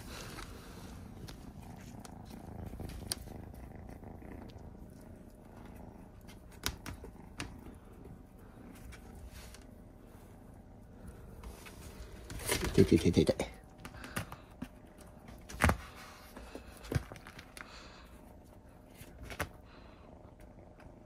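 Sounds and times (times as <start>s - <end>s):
cat purring loudly: 0.0s - 21.0s.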